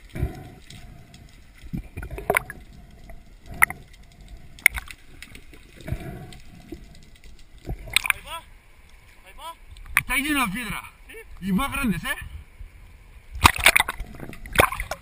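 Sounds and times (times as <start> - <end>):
sharp underwater clicks and knocks: 0.0 - 9.0, 9.7 - 10.2, 13.3 - 15.0
underwater gurgling: 0.0 - 10.2, 12.5 - 15.0.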